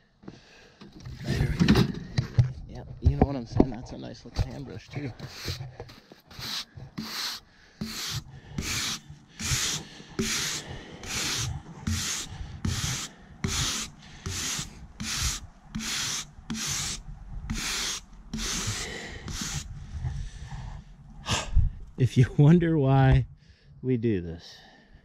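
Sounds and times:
hand brush sweeping wood: 5.2s - 19.7s.

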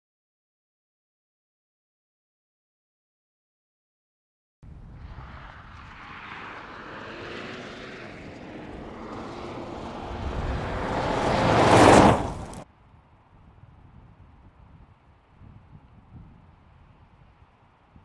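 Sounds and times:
tyres on a dirt track: 4.6s - 12.6s
diesel engine passing at speed: 4.7s - 12.6s.

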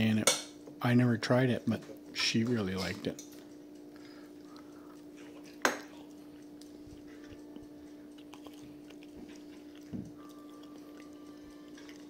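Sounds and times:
faint chewing: 2.7s - 12.0s.

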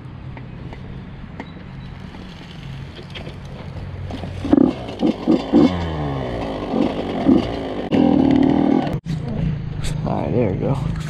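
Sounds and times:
engine idling and revving: 2.0s - 9.4s.

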